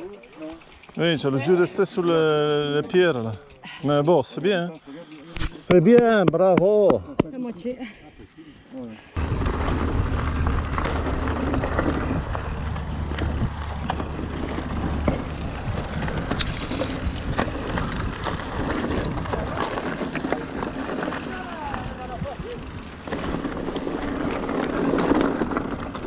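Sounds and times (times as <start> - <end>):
bike rattling: 0.0 - 7.6, 9.1 - 26.0
tyre and trail noise: 0.0 - 26.0
low rumble: 9.2 - 26.0.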